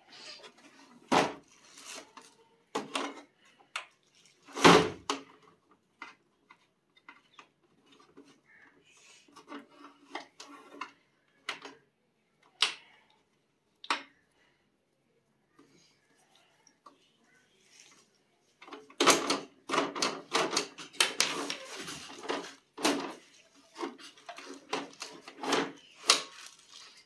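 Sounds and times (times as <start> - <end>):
cord rustling: 0.1 - 2.5, 3.9 - 4.6, 15.6 - 27.0.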